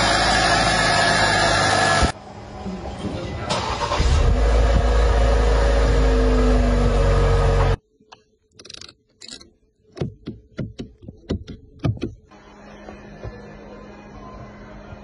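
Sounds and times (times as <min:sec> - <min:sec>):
car engine rumbling: 0:00.0 - 0:07.8.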